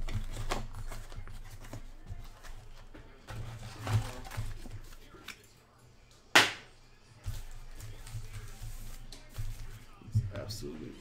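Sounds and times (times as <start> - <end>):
cardboard and foil rustling: 0.0 - 5.3, 7.2 - 10.0.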